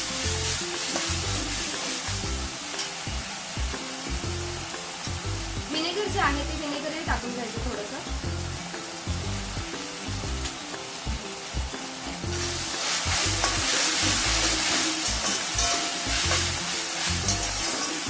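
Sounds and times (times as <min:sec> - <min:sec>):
soft background music: 0:00.0 - 0:18.0
vegetables sizzling in a pan: 0:00.0 - 0:18.0
spatula stirring in metal pan: 0:12.3 - 0:18.0.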